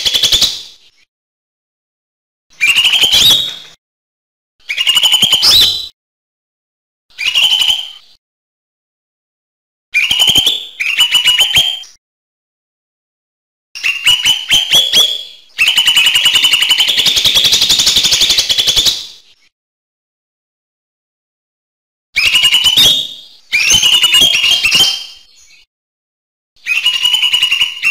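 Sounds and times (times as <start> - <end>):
bird chattering song: 2.6 - 3.8, 4.6 - 5.9, 7.2 - 8.2, 10.0 - 12.0, 13.8 - 19.5, 22.2 - 25.7, 26.6 - 27.9.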